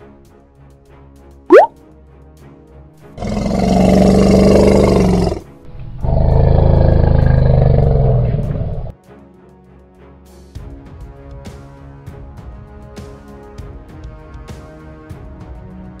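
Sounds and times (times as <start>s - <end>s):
background music: 0.0s - 16.0s
loud animal roars: 3.2s - 8.9s.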